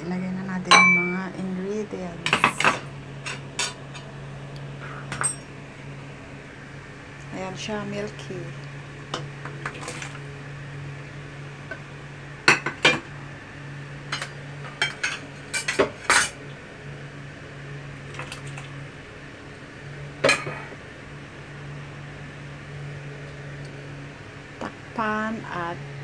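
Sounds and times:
steady low hum: 0.0s - 26.0s
utensils clinking against pot: 2.2s - 4.0s, 14.1s - 16.4s.

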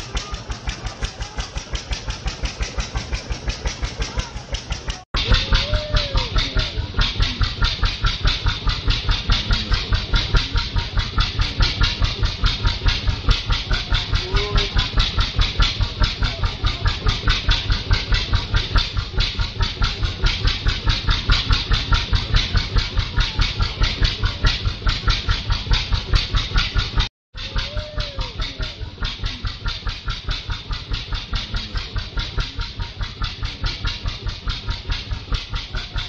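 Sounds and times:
engine chugging at idle: 0.0s - 36.0s.

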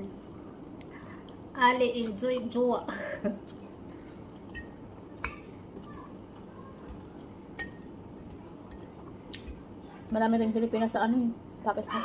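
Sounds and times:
fork clinking on ceramic plate: 7.6s - 8.9s.

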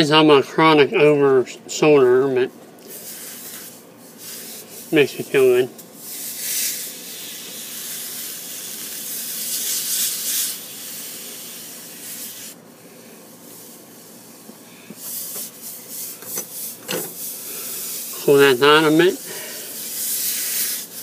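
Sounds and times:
steam hissing: 2.9s - 12.6s, 15.0s - 21.0s
rag rubbing against pipe: 15.0s - 21.0s.

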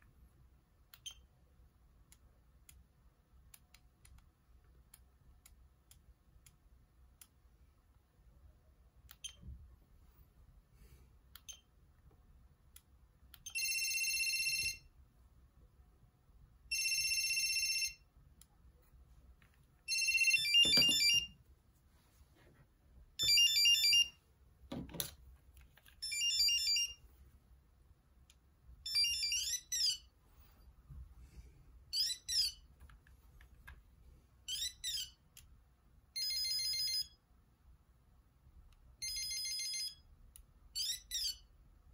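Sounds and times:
electronic phone ringtones: 13.5s - 14.9s, 16.7s - 18.1s, 19.9s - 21.4s, 23.2s - 24.2s, 26.0s - 27.0s, 28.8s - 30.1s, 34.5s - 35.2s, 36.2s - 37.2s, 39.0s - 40.1s, 40.8s - 41.5s.

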